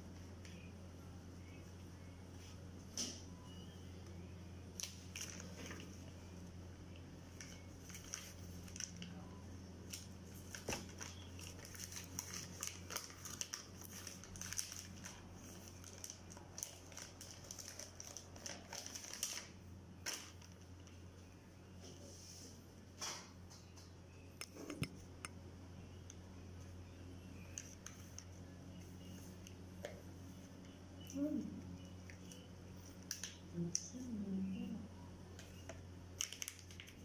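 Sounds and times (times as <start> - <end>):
papery wrappers peeled apart: 7.4 - 9.2, 9.9 - 20.6, 36.2 - 37.0.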